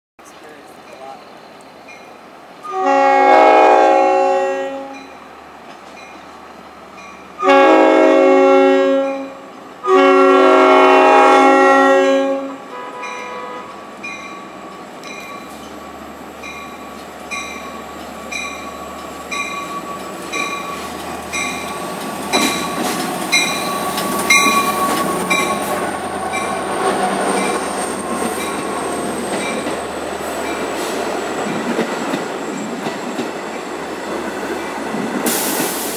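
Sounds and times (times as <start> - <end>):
train passing: 0.2 - 35.9
crossing bell dinging: 0.7 - 2.2, 4.8 - 5.3, 5.9 - 7.5, 12.8 - 30.7
locomotive horn blasts: 2.6 - 5.1, 7.4 - 13.8.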